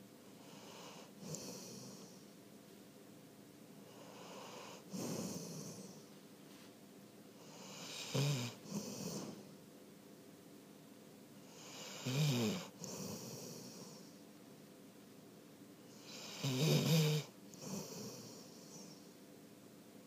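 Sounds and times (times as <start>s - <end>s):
dog snoring: 0.4s - 2.2s, 3.8s - 6.1s, 7.4s - 9.5s, 11.4s - 14.1s, 15.9s - 19.1s.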